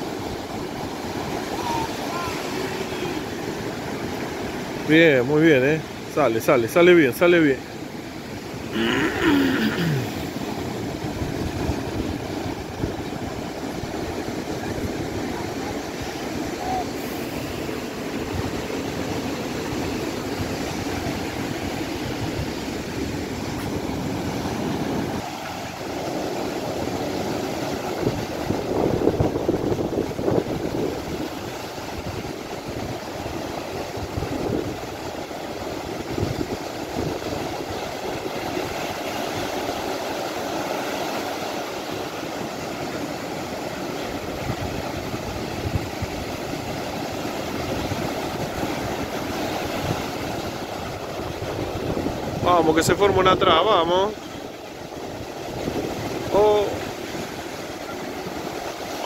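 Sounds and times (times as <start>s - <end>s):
ocean surf breaking: 0.0s - 59.0s
wind rumbling on microphone: 10.2s - 40.1s, 43.6s - 53.5s, 54.4s - 59.0s.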